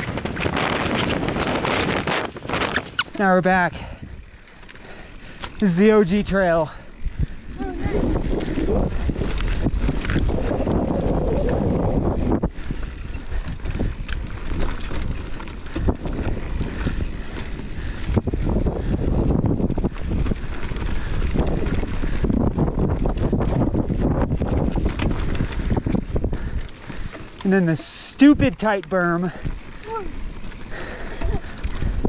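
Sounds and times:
tyres rolling over dirt and stones: 0.0 - 3.0, 13.5 - 18.1
bike clattering over bumps: 0.0 - 3.2, 4.2 - 27.9, 28.6 - 32.0
wind buffeting microphone: 0.0 - 27.4, 29.3 - 32.0.

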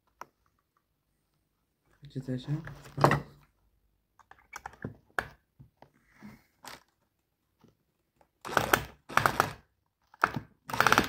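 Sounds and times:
cordless drill driving screw into wood: 8.4 - 11.0.

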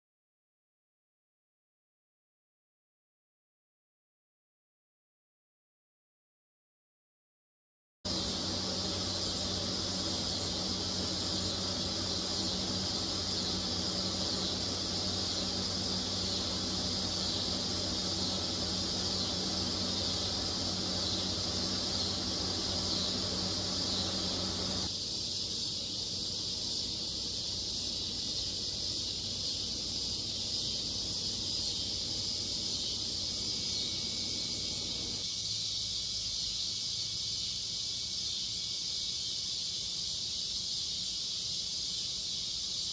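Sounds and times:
low steady hum: 8.1 - 35.3
insects buzzing: 8.1 - 42.9.

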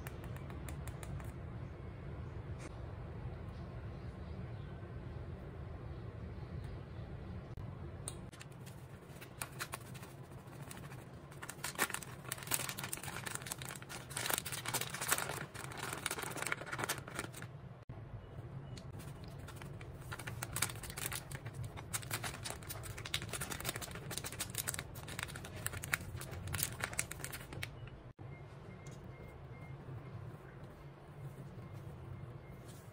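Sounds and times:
plastic packets crinkling: 8.4 - 17.6, 19.0 - 27.8.

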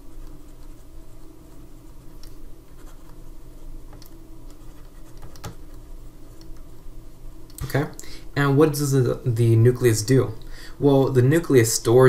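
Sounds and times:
stylus scratching on tablet: 0.0 - 3.7, 4.6 - 6.4
low steady hum: 0.0 - 12.0.

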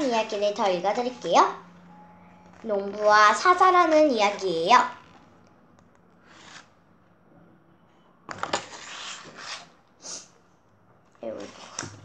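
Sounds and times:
book pages turning: 6.2 - 6.7, 8.3 - 9.8, 11.1 - 12.0.

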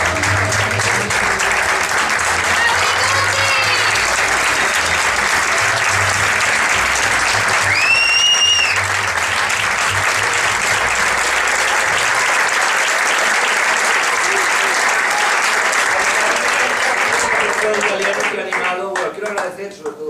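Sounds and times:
audience applauding: 0.0 - 19.6
loud whistle: 7.6 - 8.8.

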